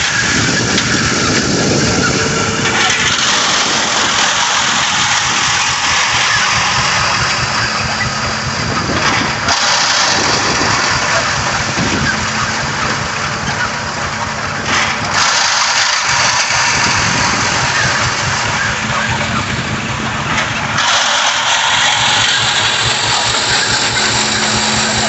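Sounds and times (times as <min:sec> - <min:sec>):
rock crusher grinding stone: 0:00.0 - 0:25.0
tractor engine running: 0:00.0 - 0:25.0.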